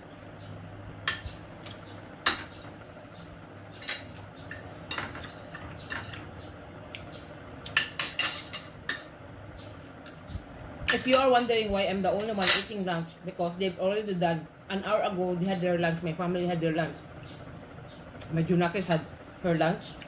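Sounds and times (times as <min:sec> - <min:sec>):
low steady hum: 0:00.0 - 0:20.0
cutlery scraping ceramic plates: 0:07.7 - 0:09.1.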